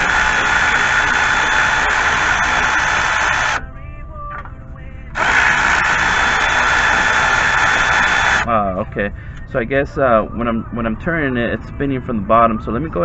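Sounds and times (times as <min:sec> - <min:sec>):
cordless ratchet whirring: 0:00.0 - 0:03.6, 0:05.2 - 0:08.5.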